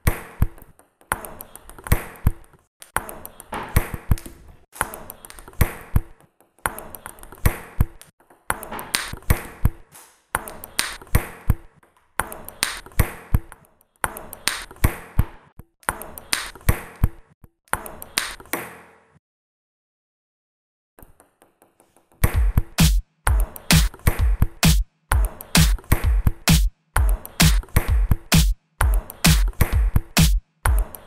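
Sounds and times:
table tennis ball clicks: 0:10.4 - 0:18.7.

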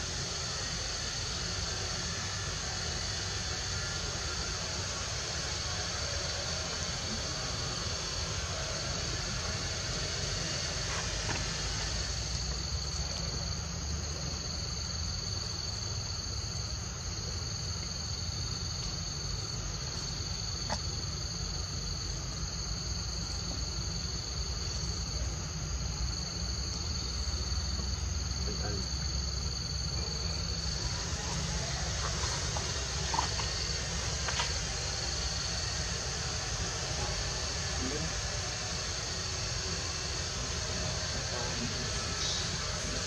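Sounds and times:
insects trilling: 0:00.0 - 0:43.0.

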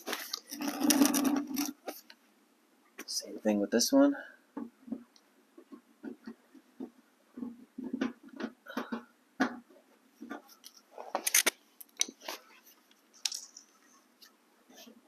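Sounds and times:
plastic clip clicking and scraping: 0:11.2 - 0:12.2.

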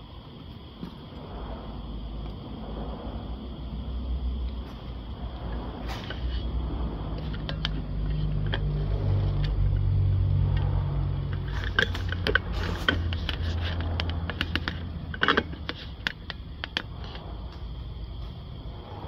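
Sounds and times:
low mechanical hum: 0:00.0 - 0:19.0
sharp clicks and knocks: 0:11.3 - 0:18.4.

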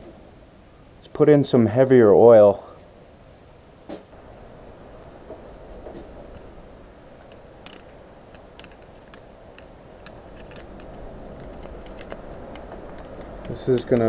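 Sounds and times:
low steady hum: 0:00.0 - 0:14.0
oil can clicks: 0:07.2 - 0:14.0.

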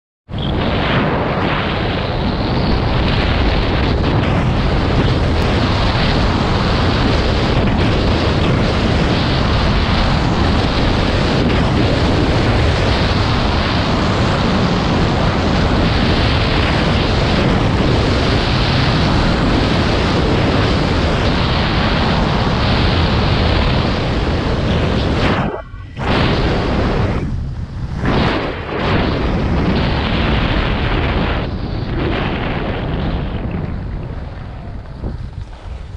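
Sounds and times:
wind buffeting microphone: 0:00.3 - 0:35.9.

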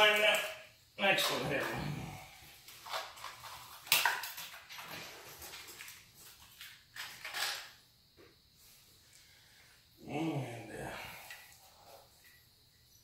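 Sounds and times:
small parts rustling and clicking: 0:02.6 - 0:07.8.

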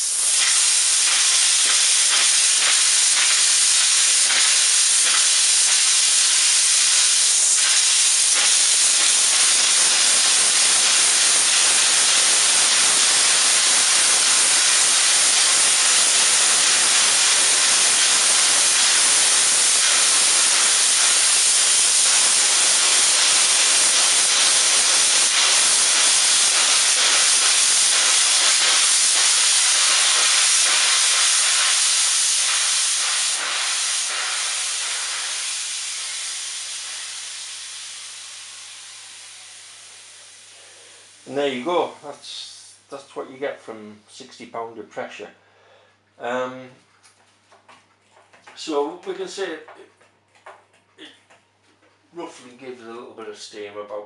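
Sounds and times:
steam hissing from valve: 0:00.0 - 0:42.9.

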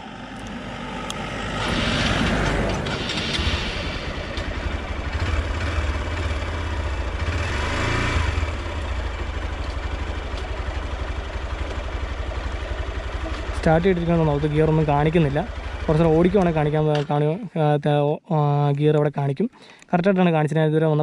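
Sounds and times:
passing vehicle: 0:00.0 - 0:17.1
motorcycle engine idling: 0:02.3 - 0:17.1.

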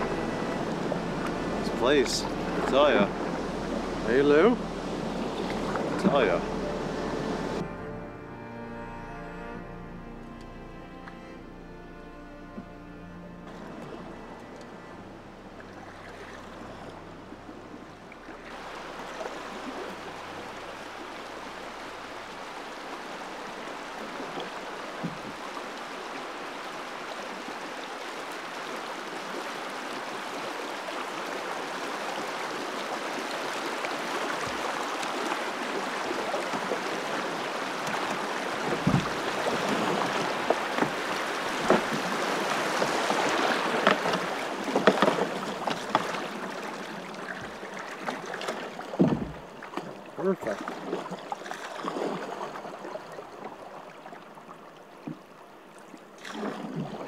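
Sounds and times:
river rushing through rapids: 0:00.0 - 0:07.7, 0:18.4 - 0:54.2
water splashing: 0:00.0 - 0:07.8, 0:12.5 - 0:57.0
knocks against canoe: 0:38.6 - 0:46.2, 0:48.9 - 0:50.0.

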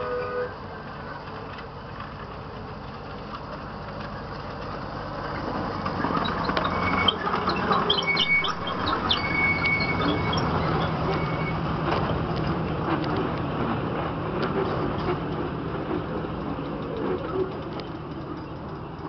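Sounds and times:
wheels rumbling on track: 0:00.0 - 0:19.0
high thin squeaks: 0:06.2 - 0:11.6
miniature train engine running: 0:14.4 - 0:19.0.

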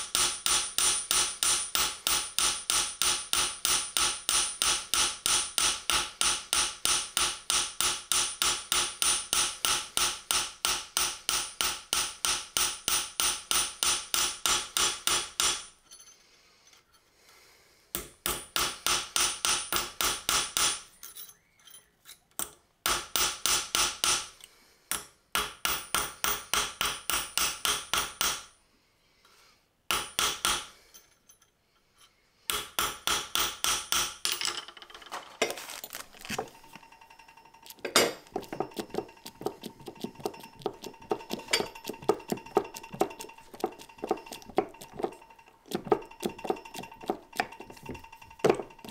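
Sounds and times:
hammer striking metal on anvil: 0:00.0 - 0:15.8, 0:18.0 - 0:20.9, 0:24.9 - 0:28.5, 0:29.9 - 0:30.7, 0:32.5 - 0:34.3, 0:36.9 - 0:48.9.

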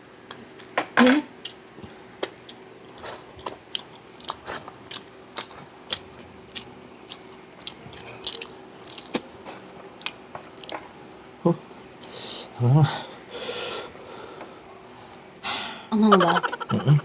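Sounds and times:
person chewing and crunching food: 0:01.4 - 0:10.9.

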